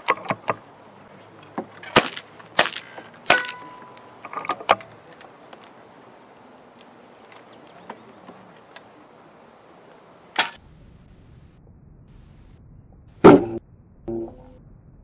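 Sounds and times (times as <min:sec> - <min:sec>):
air rifle shots: 0:10.3 - 0:10.6.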